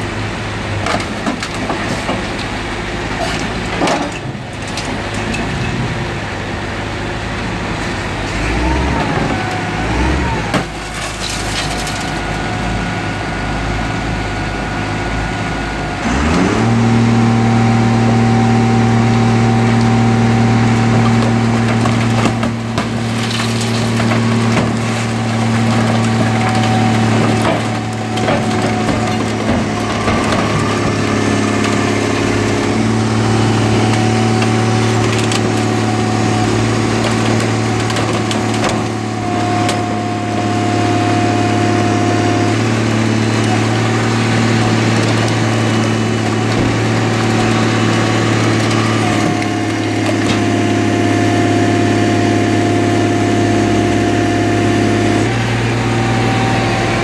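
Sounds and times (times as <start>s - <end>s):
car crusher engine and hydraulics: 0.0s - 57.0s
metal and glass cracking: 10.7s - 12.3s, 21.0s - 32.8s.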